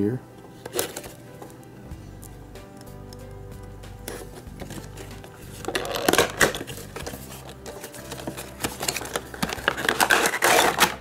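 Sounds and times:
packaging crinkling: 4.2 - 11.0.

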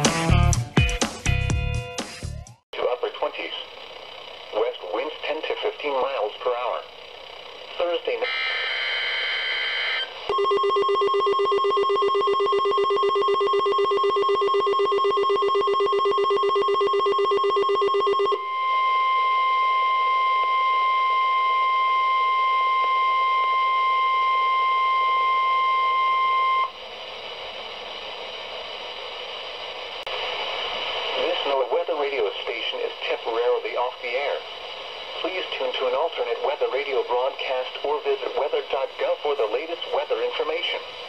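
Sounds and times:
steady alarm tone: 6.6 - 26.8
data header screech: 7.8 - 10.2
fast-pulsing alert beep: 9.6 - 18.4.

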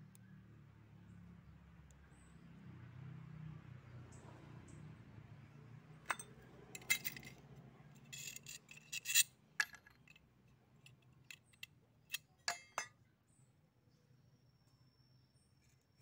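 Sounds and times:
metal parts clicking and clinking: 6.1 - 7.4, 8.0 - 10.2, 10.8 - 12.9.

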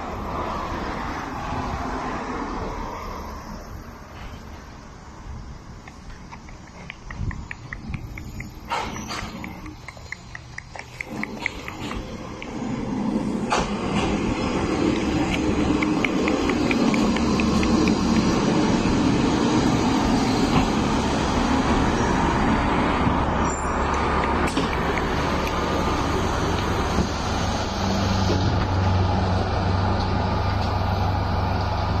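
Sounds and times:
diesel railcar engine: 0.0 - 32.0
sharp click: 5.8 - 12.8, 23.5 - 27.1
brief high squeal: 23.4 - 23.9.

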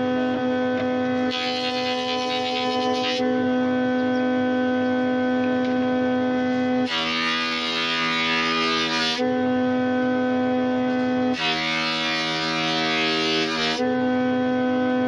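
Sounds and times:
thickness planer whining: 0.0 - 15.0
board cutting rush: 1.2 - 3.2, 6.5 - 9.3, 11.0 - 13.9.

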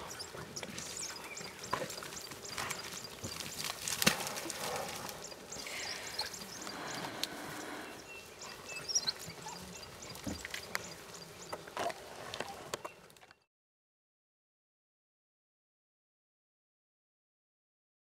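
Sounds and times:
wild dogs chirping calls: 0.0 - 13.0.

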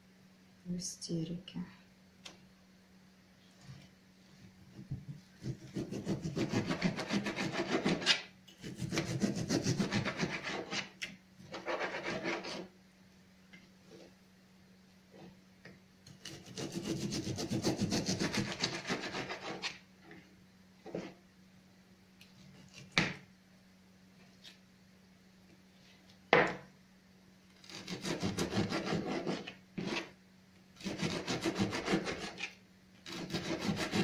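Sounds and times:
knife sawing through meat: 5.4 - 10.9, 16.2 - 19.8, 27.6 - 30.1, 30.8 - 32.5, 33.1 - 34.0.

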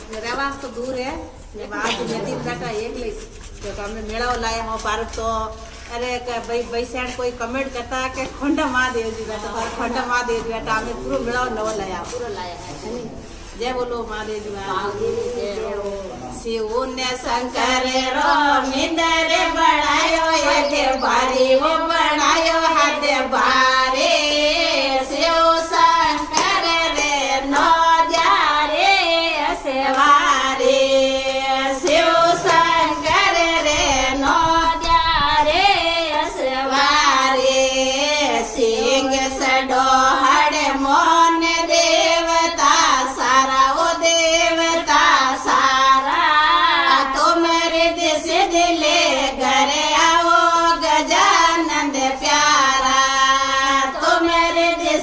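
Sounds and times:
women singing in unison: 0.0 - 12.8, 13.6 - 55.0
hands clapping rhythmically: 26.1 - 28.4, 31.2 - 33.2.

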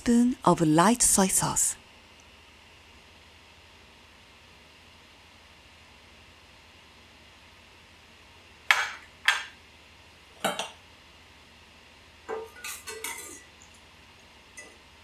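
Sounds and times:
dishes and utensils clinking: 10.4 - 10.8, 12.3 - 13.6.

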